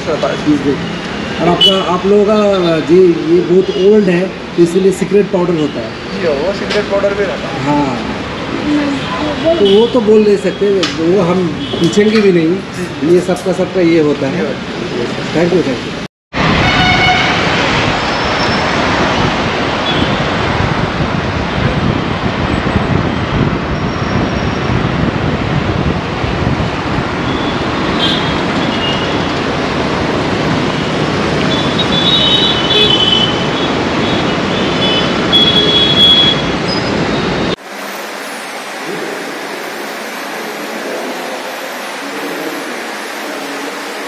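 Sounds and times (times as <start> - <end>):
road and engine noise: 0.0 - 44.0
short high vehicle horns: 16.6 - 17.6, 31.5 - 36.6.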